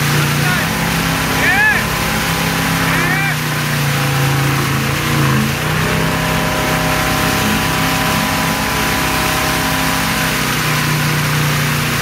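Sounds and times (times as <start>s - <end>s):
boat engine running: 0.0s - 12.0s
churning wake water: 0.0s - 12.0s.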